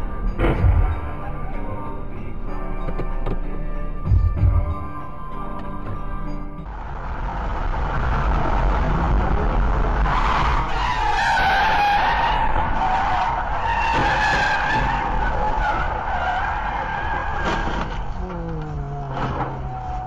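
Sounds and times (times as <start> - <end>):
car driving rumble: 0.0 - 20.0
car tyres squealing: 5.0 - 20.0.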